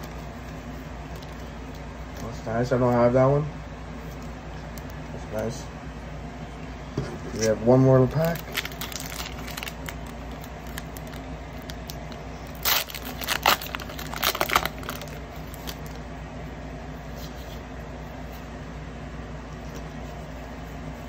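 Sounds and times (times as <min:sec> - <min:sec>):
foil wrapper tearing and crinkling: 0:07.4 - 0:16.0.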